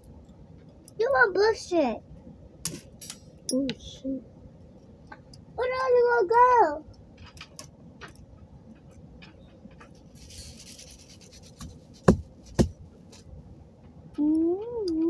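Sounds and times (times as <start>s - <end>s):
rubbing and handling small pieces: 8.9s - 13.3s.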